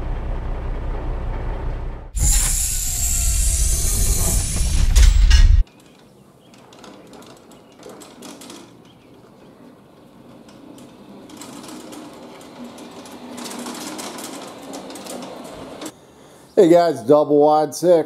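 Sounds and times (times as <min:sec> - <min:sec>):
wheels rolling on asphalt: 0:05.6 - 0:16.0.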